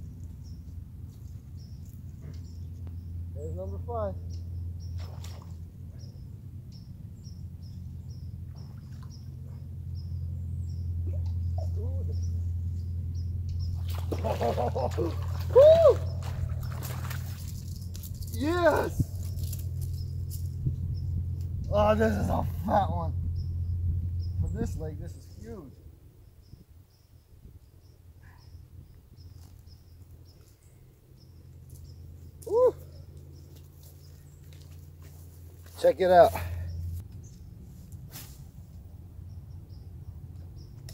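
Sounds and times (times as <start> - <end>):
steady low rumble: 0.0 - 40.9
small bird chirping: 0.3 - 14.1, 16.0 - 21.8, 23.2 - 25.6
fish splashing in water: 5.0 - 5.7, 13.7 - 18.4
man whooping: 14.8 - 16.4, 32.4 - 33.0.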